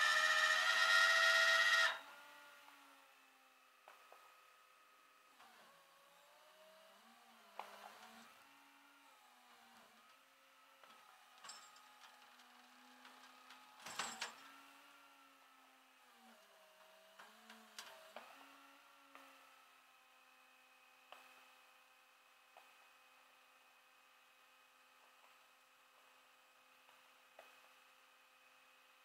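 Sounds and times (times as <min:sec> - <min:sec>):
hydraulic winch whine: 0:00.0 - 0:02.2
rattle: 0:11.4 - 0:12.5, 0:13.1 - 0:14.5.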